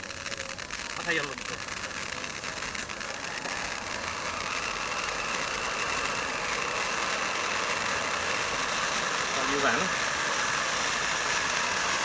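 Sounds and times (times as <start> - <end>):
firework fountain hissing sparks: 0.0 - 12.0.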